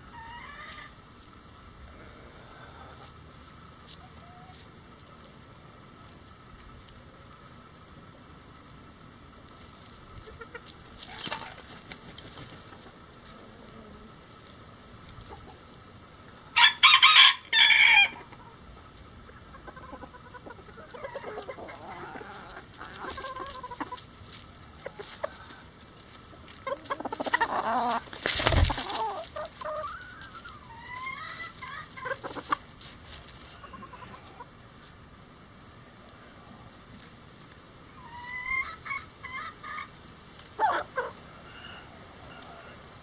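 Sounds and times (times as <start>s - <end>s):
chickens clucking: 0.0s - 43.0s
rooster crowing: 16.6s - 18.3s, 41.4s - 42.9s.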